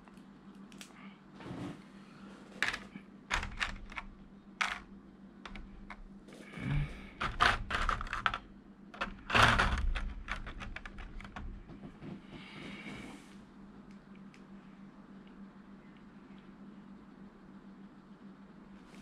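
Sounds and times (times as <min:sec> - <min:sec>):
plastic tray clicking and crackling: 0:09.0 - 0:11.5.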